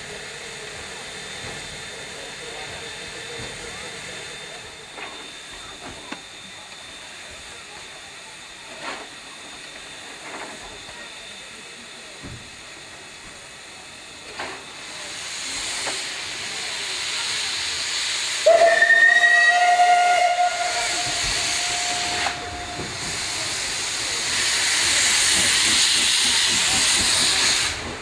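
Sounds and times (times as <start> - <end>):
steam locomotive hissing: 0.0 - 28.0
steam locomotive whistle: 18.3 - 23.1.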